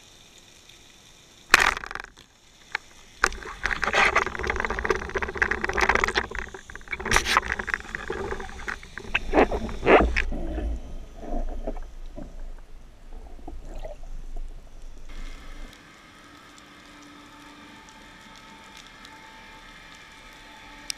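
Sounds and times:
underwater water rushing: 1.5s - 15.8s.

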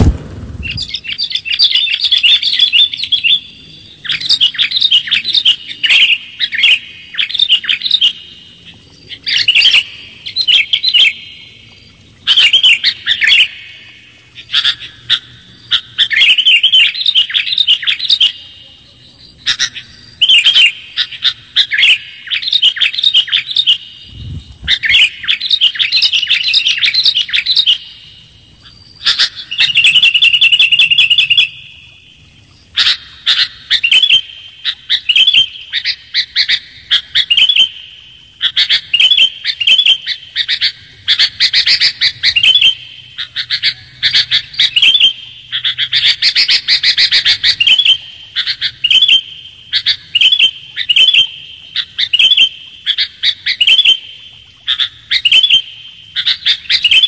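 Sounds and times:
bulbul song: 32.8s - 57.0s.

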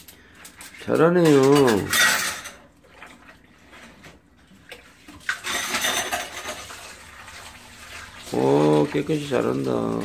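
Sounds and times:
water running over dishes: 0.0s - 10.0s
plates clinking: 1.2s - 2.6s, 5.4s - 6.6s.

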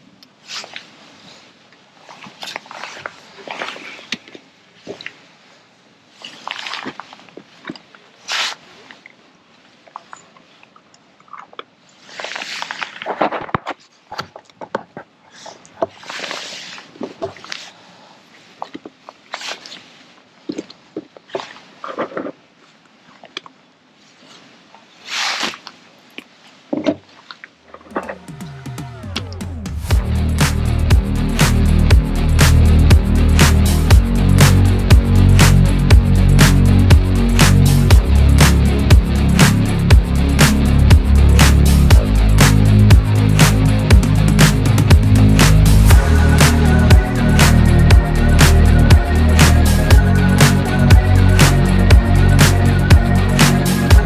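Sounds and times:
loud short rustle: 24.0s - 25.9s.

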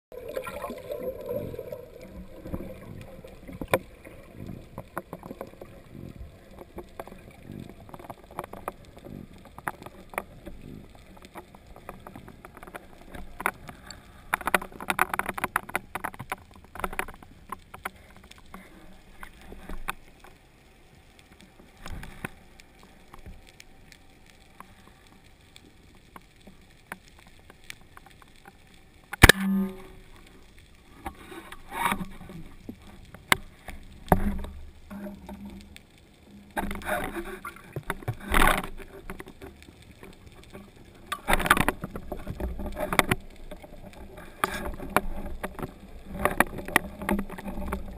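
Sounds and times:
underwater water rush: 0.1s - 47.9s
sharp clicks and knocks: 2.4s - 20.4s, 36.5s - 47.9s.

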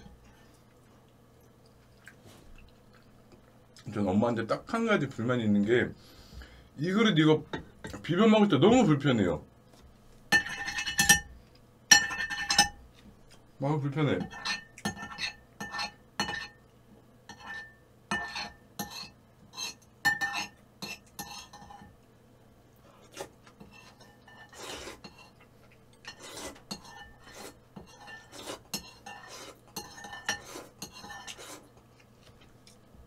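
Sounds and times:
spoon clinking and scraping bowl: 10.3s - 11.3s, 11.9s - 12.8s, 14.2s - 16.6s, 17.3s - 21.9s, 23.6s - 25.4s, 26.0s - 31.7s.

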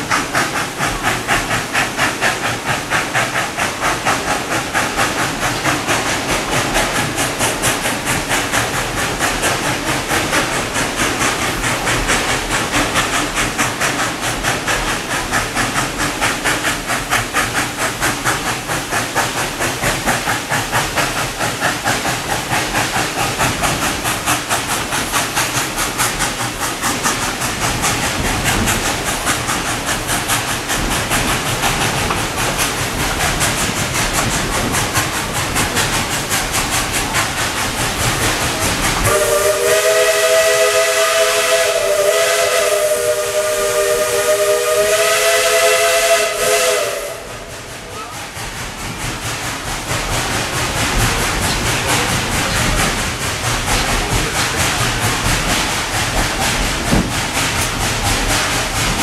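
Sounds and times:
steam locomotive chuffing: 0.0s - 59.0s
chime steam whistle: 39.1s - 47.4s.

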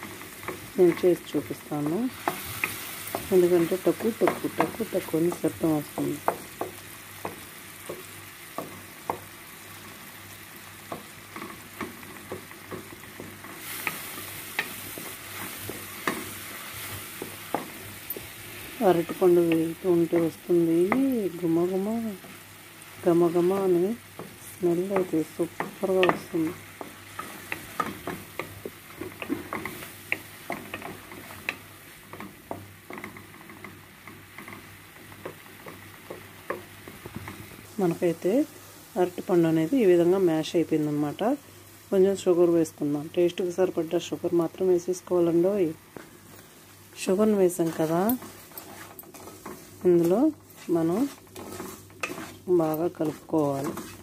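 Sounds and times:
banana frying and sizzling: 0.0s - 54.0s
wooden spatula scraping a pan: 10.8s - 38.2s, 46.0s - 54.0s.

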